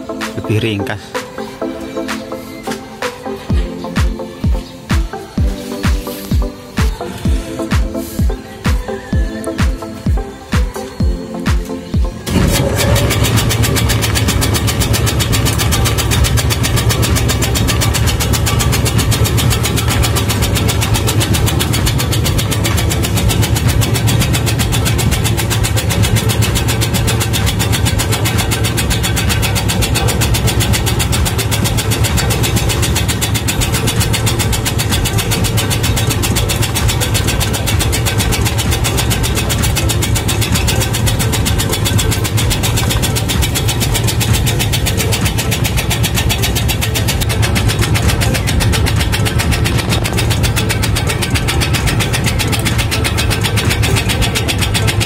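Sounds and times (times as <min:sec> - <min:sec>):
electric motor drone: 0:12.2 - 0:55.0
shredding blade chatter: 0:12.2 - 0:55.0.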